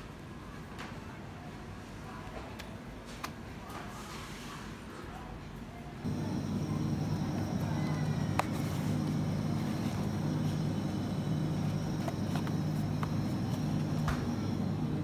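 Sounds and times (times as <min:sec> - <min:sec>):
refrigerated display case hum: 0:00.0 - 0:15.0
faint high whine: 0:06.1 - 0:15.0.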